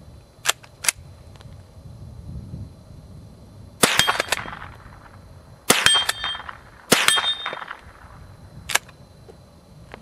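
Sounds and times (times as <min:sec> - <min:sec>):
rifle shots: 0:03.8 - 0:08.8
metallic ring: 0:05.8 - 0:07.7.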